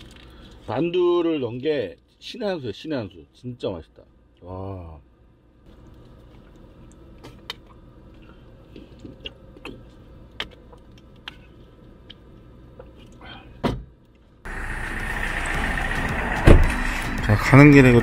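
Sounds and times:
steady outdoor hiss: 14.4 - 18.0
loud thump: 16.4 - 16.8.

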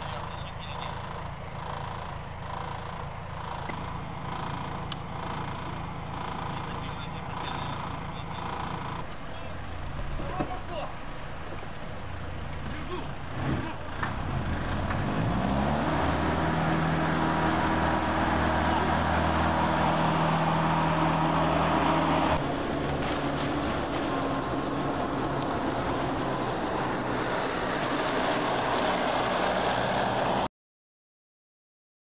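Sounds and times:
armoured vehicle engine running: 0.0 - 30.5
vehicle rumbling on dirt track: 0.0 - 30.5.

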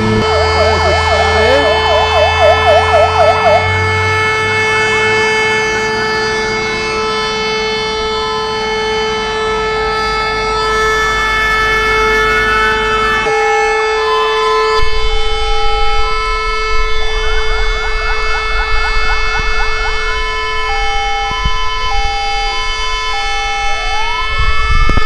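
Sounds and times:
low engine rumble: 0.0 - 7.1, 14.8 - 24.8
fire engine sirens: 0.0 - 25.0.

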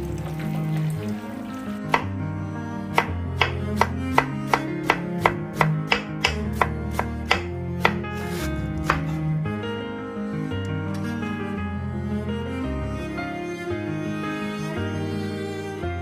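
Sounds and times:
background music: 0.0 - 16.0
knife shredding cabbage on board: 3.0 - 9.2.

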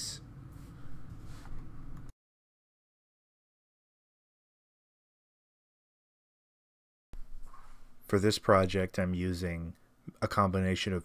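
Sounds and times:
hands rustling on metal table: 7.3 - 8.0.

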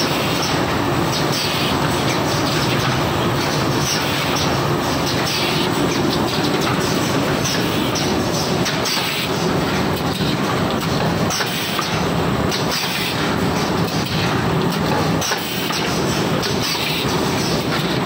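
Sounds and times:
machine mechanical clatter: 0.0 - 18.0.

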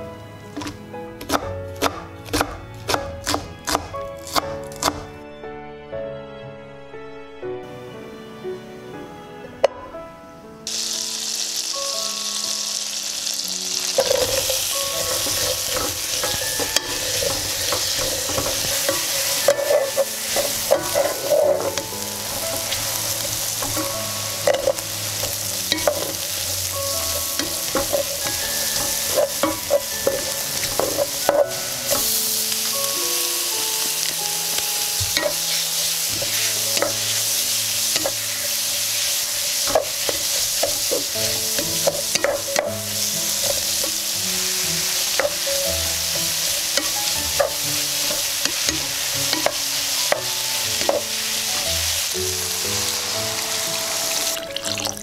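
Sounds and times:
wooden spatula scraping a pan: 0.5 - 2.6, 13.8 - 32.9, 33.8 - 44.2, 44.8 - 54.3
food sizzling in a pot: 10.7 - 55.0.

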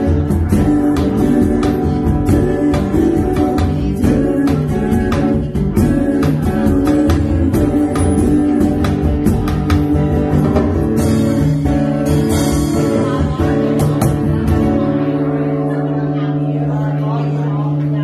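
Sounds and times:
woman singing: 0.0 - 9.5, 12.7 - 14.4
strummed guitar: 0.0 - 18.0.

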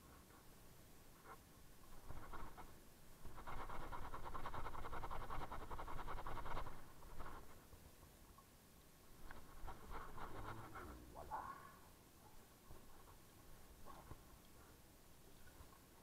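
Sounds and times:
steel wool scrubbing a sneaker: 3.3 - 7.5, 9.3 - 10.9.

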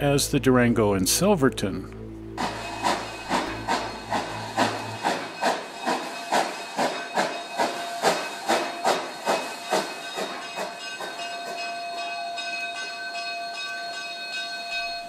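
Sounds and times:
high ringing tone: 1.9 - 15.0
steam hissing: 2.4 - 11.7
steam locomotive chuffing: 2.4 - 12.9.

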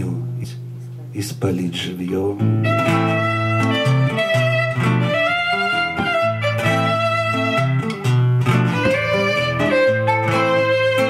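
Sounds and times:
acoustic guitar accompaniment: 0.0 - 11.0
violin melody: 2.5 - 11.0.

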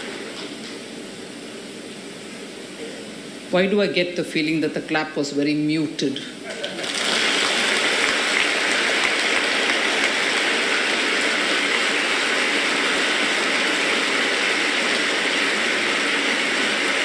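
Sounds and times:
audience applauding: 6.5 - 17.0.

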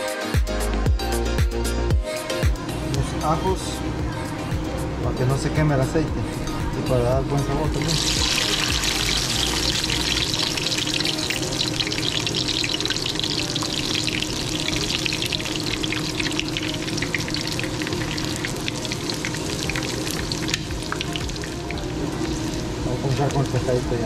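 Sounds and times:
garlic sizzling in hot oil: 7.7 - 24.0.

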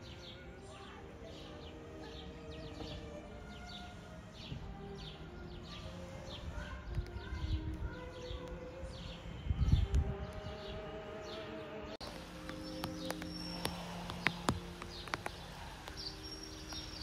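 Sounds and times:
small birds chirping: 0.0 - 17.0
whistled bird notes: 0.0 - 17.0
wind buffeting microphone: 2.8 - 11.0.

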